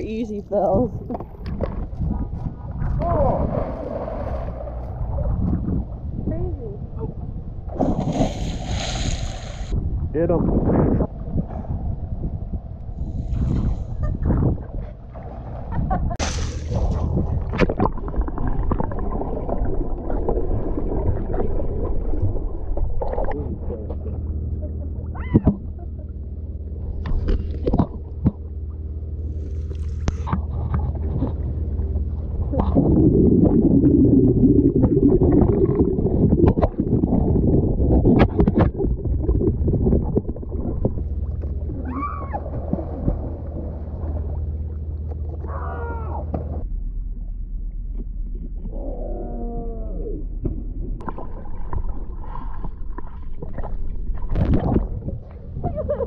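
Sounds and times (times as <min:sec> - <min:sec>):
low steady hum: 0:00.0 - 0:56.0
pool water sloshing and splashing: 0:00.6 - 0:06.1, 0:07.7 - 0:09.8, 0:13.1 - 0:24.4, 0:26.9 - 0:45.8, 0:50.5 - 0:56.0.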